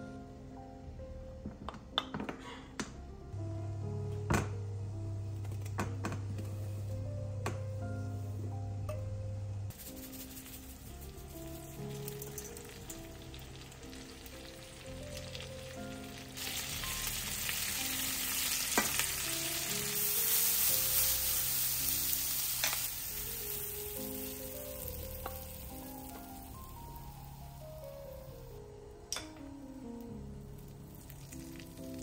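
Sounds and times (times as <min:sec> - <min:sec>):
peppers sizzling in frying pan: 0:09.7 - 0:27.7.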